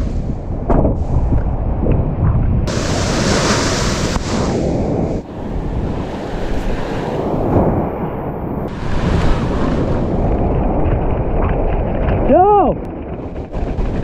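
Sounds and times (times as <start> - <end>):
wind buffeting microphone: 0.0 - 14.0
surf washing up a beach: 2.7 - 10.5.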